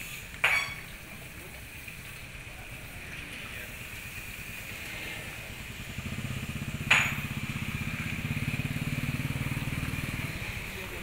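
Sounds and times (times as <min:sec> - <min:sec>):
sharp ringing knock: 0:06.9 - 0:07.3.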